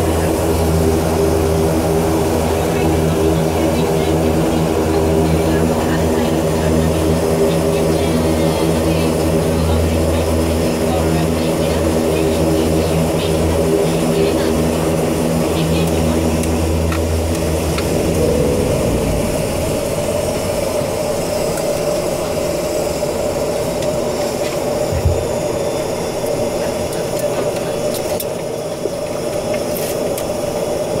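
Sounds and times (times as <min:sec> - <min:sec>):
deep propeller drone: 0:00.0 - 0:31.0
turboprop engine hiss and hum: 0:00.0 - 0:31.0
held mid-pitched tone: 0:16.6 - 0:22.0.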